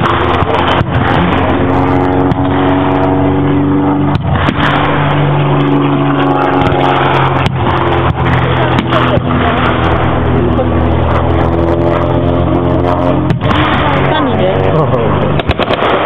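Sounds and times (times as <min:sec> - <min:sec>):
vehicle engine running loudly: 0:00.0 - 0:16.0
blank gunfire cracks: 0:04.2 - 0:05.1, 0:15.4 - 0:16.0.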